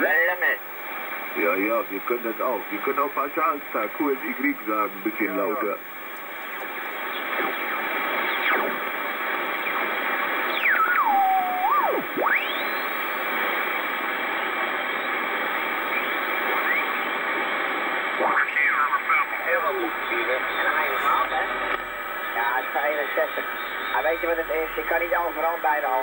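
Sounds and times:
radio band noise: 0.0s - 26.0s
sliding radio whistling tones: 6.7s - 26.0s.

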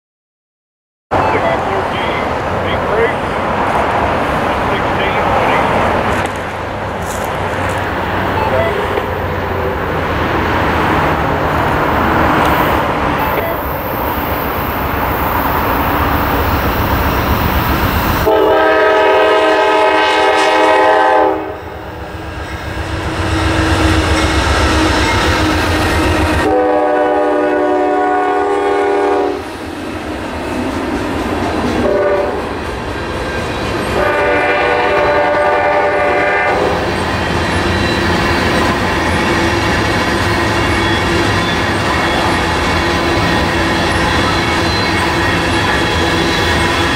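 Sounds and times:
diesel locomotive engines rumbling: 1.1s - 46.9s
rail cars rolling on rails: 1.1s - 46.9s
train air horn: 18.2s - 21.7s, 26.0s - 29.5s, 31.8s - 32.4s, 33.9s - 36.8s.

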